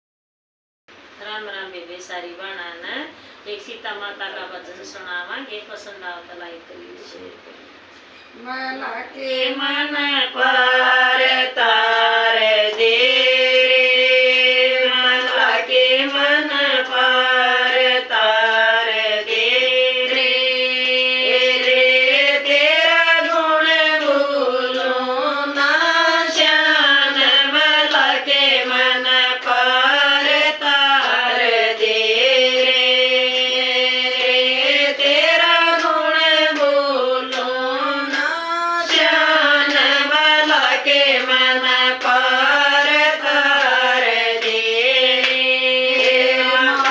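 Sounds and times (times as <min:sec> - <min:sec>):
women singing in unison: 0:09.2 - 0:46.9
hand-clapping: 0:11.2 - 0:46.9.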